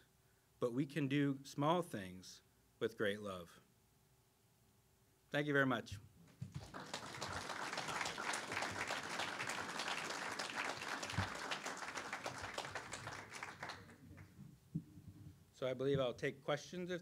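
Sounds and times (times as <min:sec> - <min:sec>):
audience applauding: 0:06.5 - 0:14.3.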